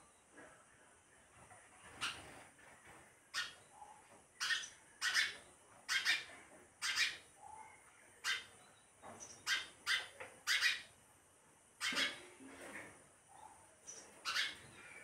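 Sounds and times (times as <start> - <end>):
sparrow chirping: 3.4 - 10.9, 13.4 - 15.0.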